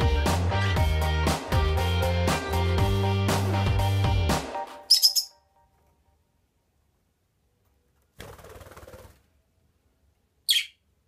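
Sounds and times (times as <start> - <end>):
parrot chirping: 4.9 - 5.4, 10.4 - 11.0
wing flapping: 8.1 - 9.4.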